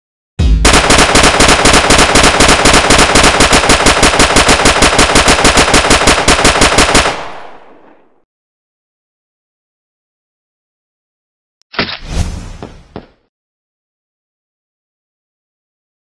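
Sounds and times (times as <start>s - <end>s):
machine-gun fire: 0.6s - 8.2s.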